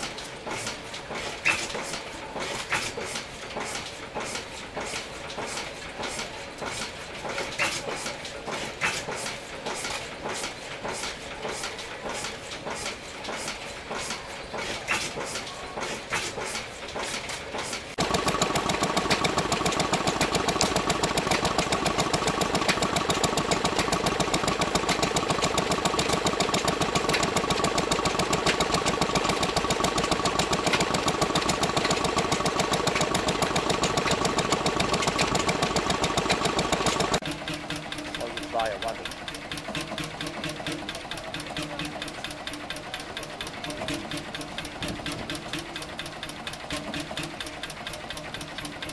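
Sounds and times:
quiet stationary engine clicking: 0.0 - 48.9
stationary engine running fast: 17.9 - 48.9.

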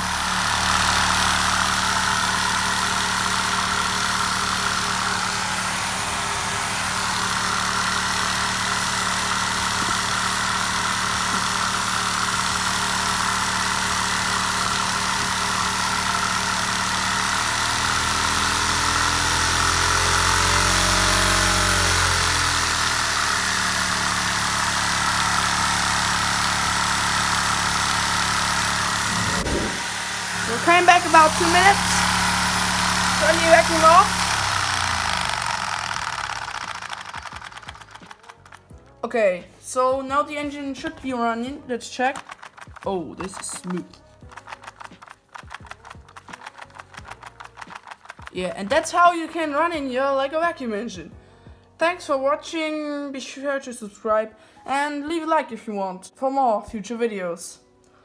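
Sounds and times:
small engine droning: 0.0 - 51.7.

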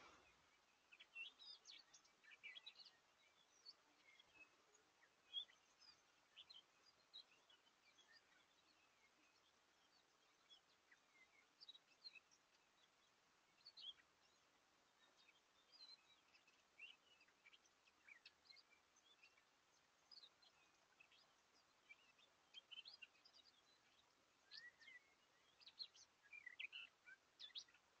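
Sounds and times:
microphone hiss: 0.0 - 28.0
small birds chirping: 0.0 - 28.0.

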